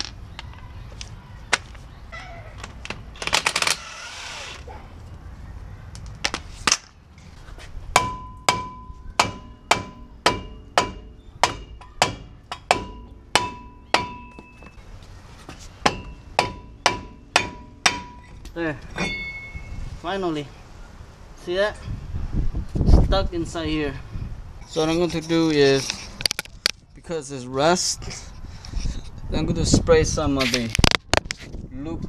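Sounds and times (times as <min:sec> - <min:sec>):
metal rotor ringing: 0:19.0 - 0:19.8.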